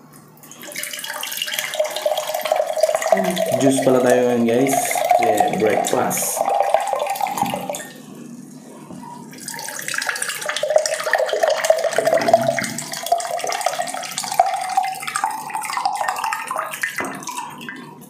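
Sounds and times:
juice pouring into glass: 0.5 - 8.1, 9.3 - 17.9.

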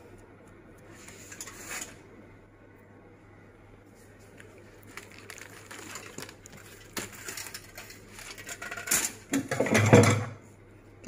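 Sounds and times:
aluminium foil crinkling: 4.2 - 9.3
raw chicken skin squishing: 4.8 - 7.2.

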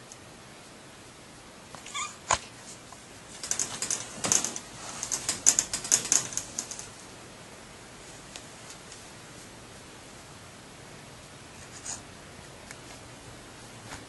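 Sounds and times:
wire crate clicking and rattling: 3.3 - 7.0.

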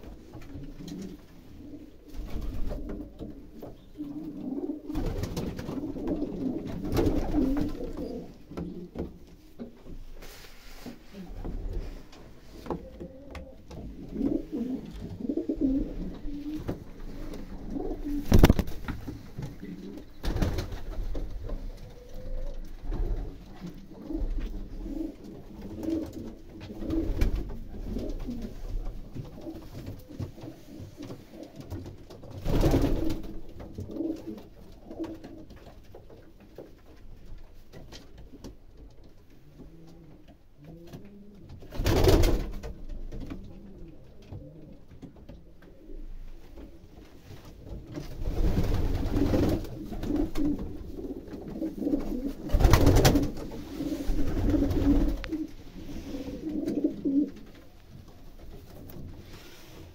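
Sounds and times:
pigeons cooing: 0.0 - 9.1, 11.1 - 20.4, 21.2 - 31.9, 39.4 - 41.7, 48.6 - 57.6.

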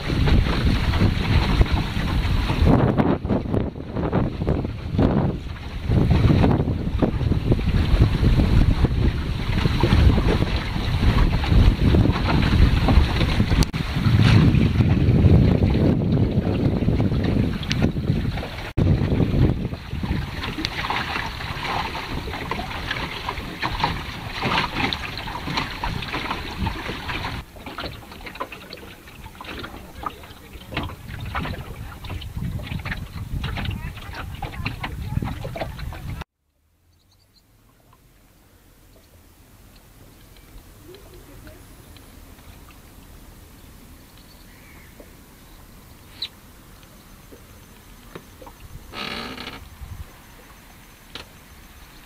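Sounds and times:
water splashing against hull: 0.0 - 36.3, 37.4 - 52.0
wind rumbling on microphone: 0.0 - 36.3, 37.0 - 52.0
faint bird call: 44.1 - 45.1.

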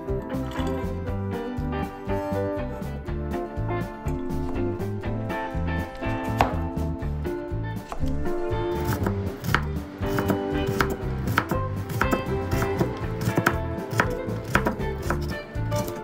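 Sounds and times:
soft background music: 0.0 - 16.0
knife knocking on cutting board: 6.4 - 6.7.

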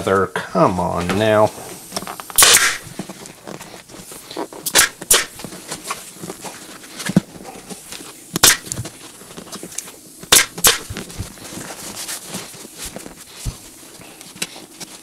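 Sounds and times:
pneumatic stapler snapping: 2.4 - 2.8, 4.6 - 5.4, 8.4 - 8.8, 10.3 - 10.9.

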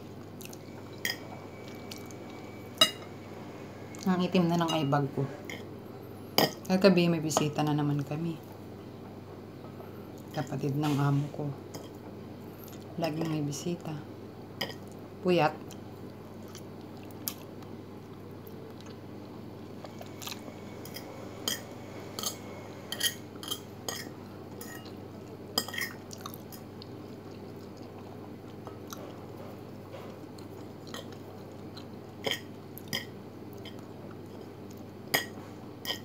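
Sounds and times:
person chewing: 0.3 - 2.2, 16.4 - 19.0, 19.8 - 21.6, 25.6 - 29.2, 30.2 - 34.9
fork scraping a plate: 20.8 - 24.8.

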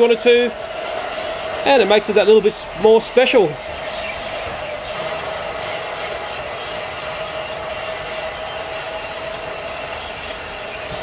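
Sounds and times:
toy train motors whining: 0.0 - 11.0
wheels and gears rushing: 0.0 - 11.0.

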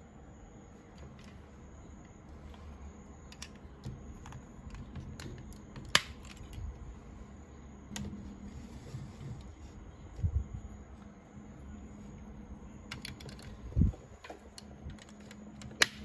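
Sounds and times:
sharp plastic snap: 5.2 - 6.6, 14.6 - 16.0
plastic toy parts clicking: 12.9 - 13.7.

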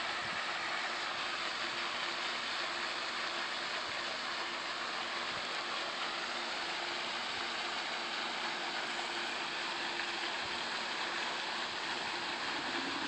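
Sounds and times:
faint steady hum: 0.0 - 13.0
rushing hiss: 12.4 - 13.0.

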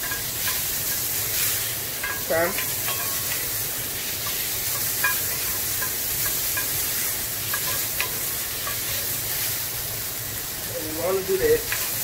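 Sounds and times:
tomatoes sizzling in a skillet: 0.0 - 12.0
spatula clicking on pan: 2.0 - 3.4, 4.2 - 6.8, 7.5 - 9.0.

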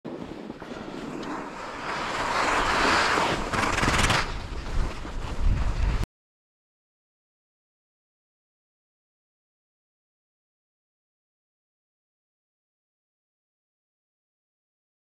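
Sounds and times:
skis scraping over snow: 0.1 - 6.0
wind buffeting microphone: 0.1 - 6.0.

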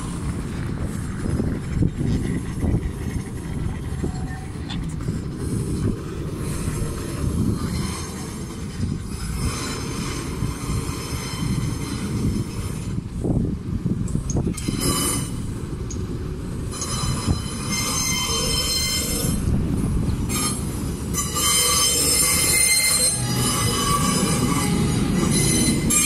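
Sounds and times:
freight wagons rumbling: 0.0 - 26.0
high-pitched wheel squeal: 16.7 - 19.5, 20.3 - 26.0.

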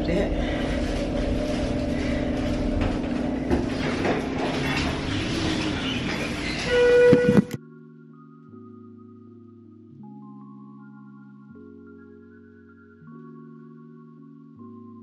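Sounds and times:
elevator chime: 0.0 - 7.6
elevator hum and rumble: 0.0 - 7.6.

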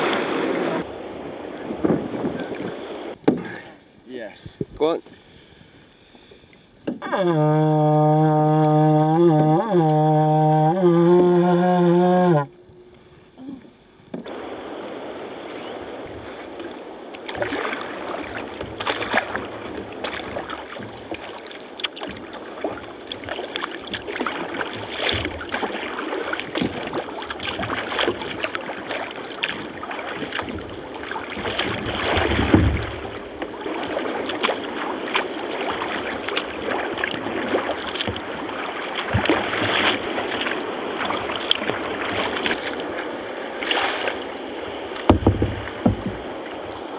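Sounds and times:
paddle splashes: 0.0 - 3.8, 6.1 - 46.9
water lapping against kayak hull: 0.0 - 3.9, 4.6 - 46.9.

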